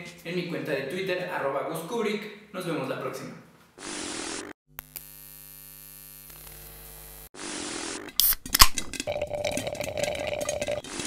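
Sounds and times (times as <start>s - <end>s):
buzzing tone with crackle: 3.8s - 8.4s.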